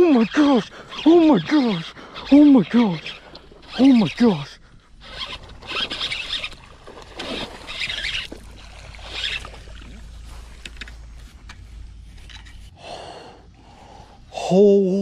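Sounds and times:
fish flopping on grass: 5.2 - 11.9
steady low rumble: 8.4 - 15.0.

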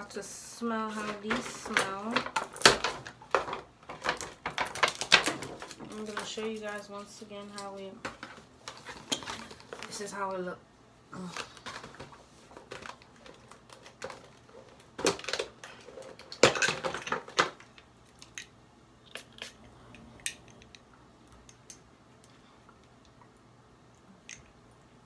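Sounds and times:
plastic box clicks and knocks: 1.3 - 6.3.

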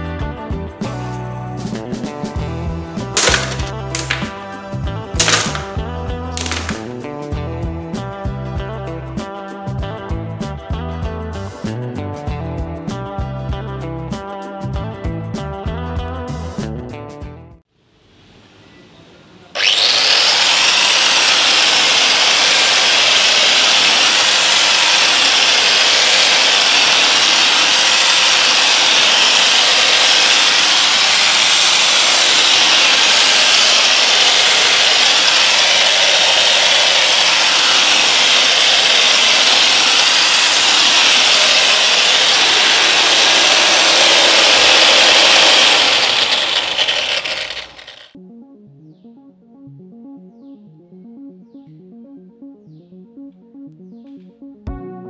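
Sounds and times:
air blower high whine: 19.6 - 48.0.

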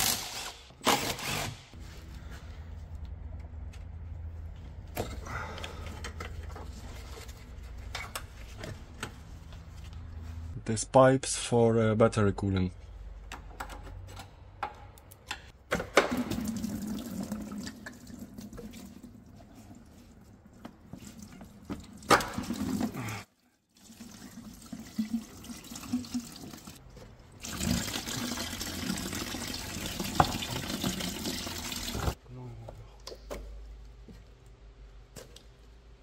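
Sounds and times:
coolant pouring into plastic bucket: 16.1 - 19.3, 27.4 - 32.1.

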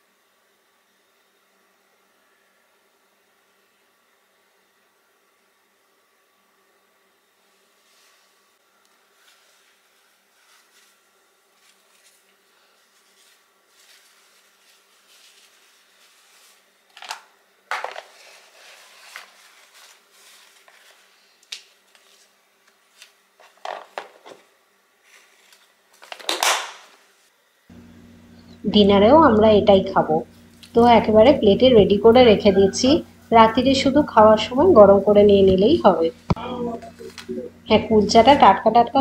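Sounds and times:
paper towel rustling and crinkling: 7.4 - 8.4, 9.0 - 27.3.

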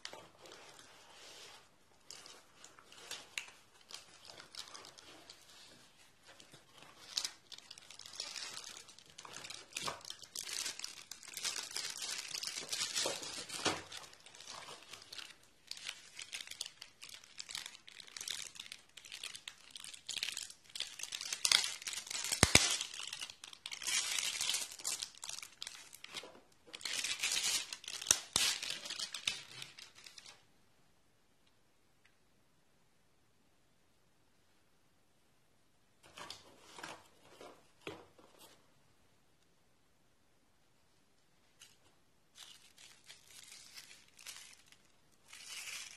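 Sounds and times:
cardboard packaging handled: 0.0 - 30.3
plastic wrapping crinkling: 0.0 - 30.4, 41.6 - 45.9.

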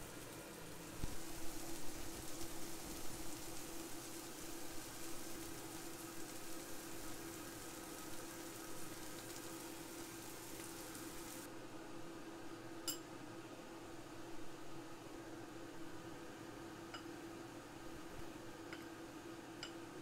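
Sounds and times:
steady hiss: 0.0 - 11.5.

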